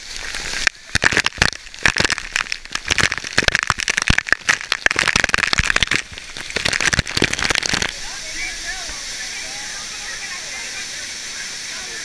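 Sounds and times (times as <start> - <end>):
waterfall rushing hiss: 0.0 - 12.0
water hitting camera housing: 0.6 - 8.0.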